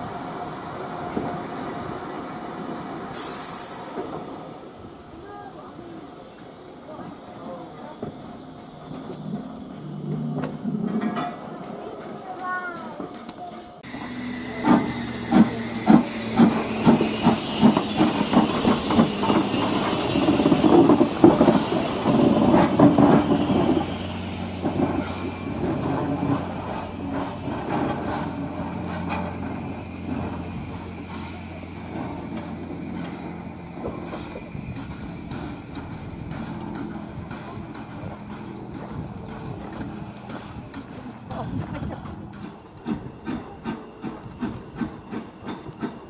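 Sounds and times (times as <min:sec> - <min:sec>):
steam hissing: 0:03.1 - 0:09.3, 0:13.8 - 0:40.8, 0:42.4 - 0:46.0
locomotive exhaust beats: 0:13.8 - 0:46.0.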